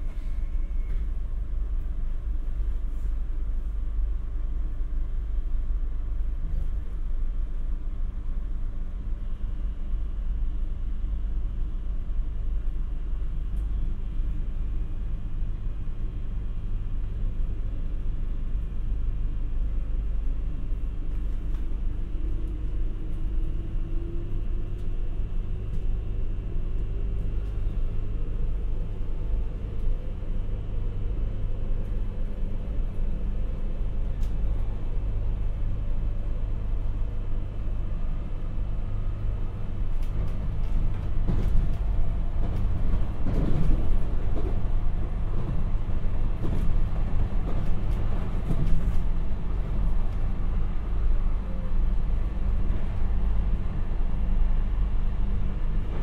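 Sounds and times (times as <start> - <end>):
train wheels rumbling on rail: 11.5 - 56.0
rattling and clatter: 40.0 - 49.9.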